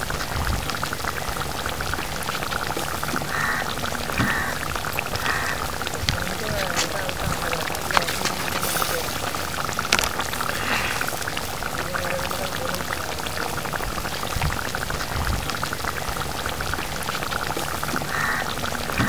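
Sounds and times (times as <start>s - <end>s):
curry bubbling in a pan: 0.0s - 19.0s.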